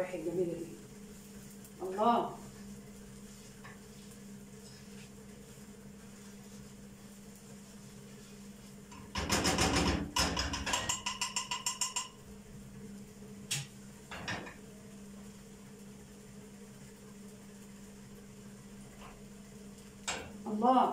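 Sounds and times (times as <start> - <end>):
garlic frying: 0.0 - 20.9
spatula clattering in frying pan: 8.9 - 12.2
spatula tapping pot rim: 8.9 - 12.2.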